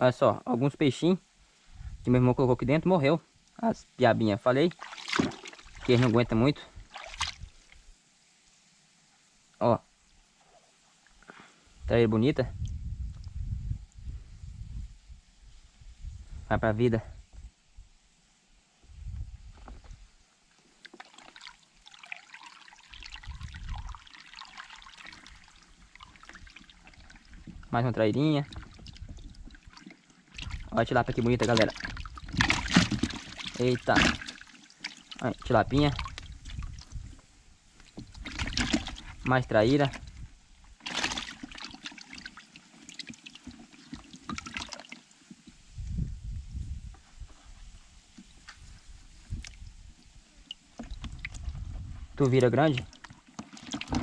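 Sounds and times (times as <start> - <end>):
water trickling and splashing: 3.3 - 11.8, 18.2 - 46.0, 47.2 - 54.0.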